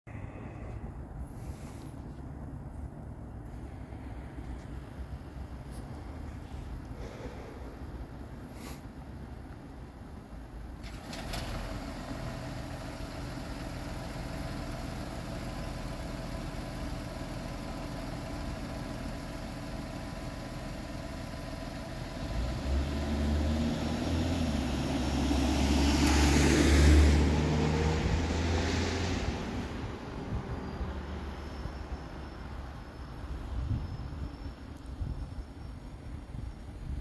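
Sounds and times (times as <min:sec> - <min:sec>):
car passing on wet road: 0:10.8 - 0:14.4, 0:22.2 - 0:30.3.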